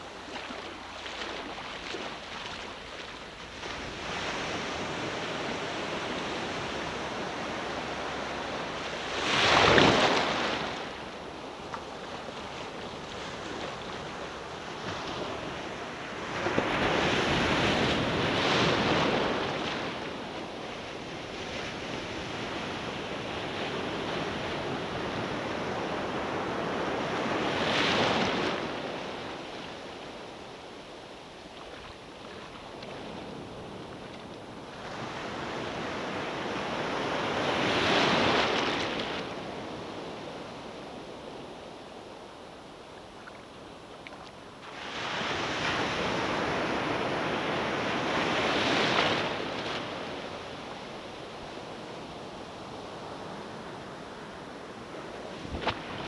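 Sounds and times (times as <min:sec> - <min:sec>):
ocean surf breaking on sand: 0:00.0 - 0:42.0, 0:44.6 - 0:56.0.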